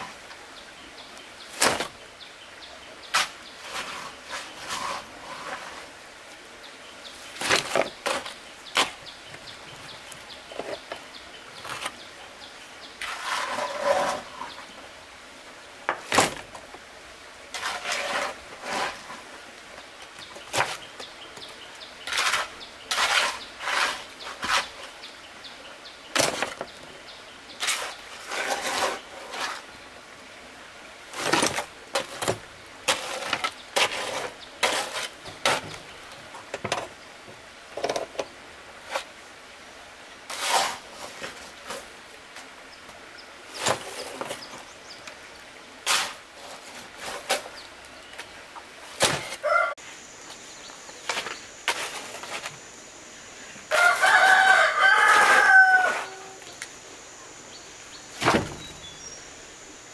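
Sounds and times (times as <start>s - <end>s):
shovel scraping wet concrete: 3.1s - 5.8s, 13.0s - 14.5s, 17.5s - 19.2s, 22.1s - 24.8s, 27.6s - 29.7s, 31.2s - 35.8s, 40.3s - 41.8s, 45.8s - 47.6s, 51.1s - 52.6s, 53.7s - 56.4s.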